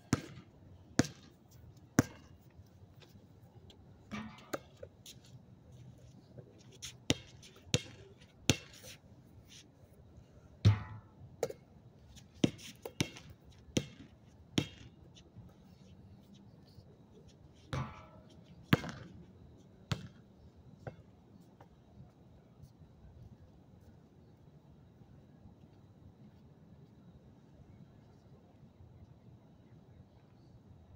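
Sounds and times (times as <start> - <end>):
basketball bouncing on court: 0.1 - 0.4, 1.0 - 1.3, 18.7 - 19.1, 19.9 - 20.2.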